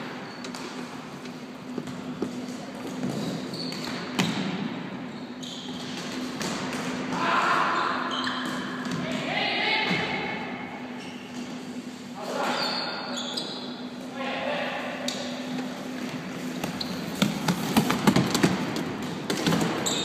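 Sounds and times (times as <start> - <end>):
shoes moving on court floor: 15.4 - 20.0.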